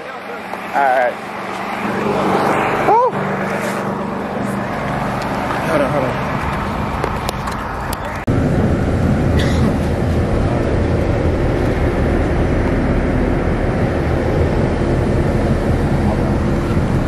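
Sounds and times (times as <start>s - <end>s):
bus engine and road noise: 0.0s - 17.0s.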